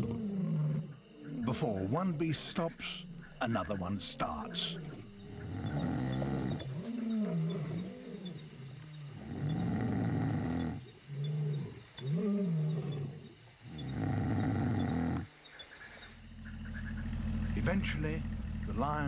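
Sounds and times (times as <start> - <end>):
person snoring heavily: 5.3 - 6.7, 9.1 - 10.8, 13.8 - 15.3.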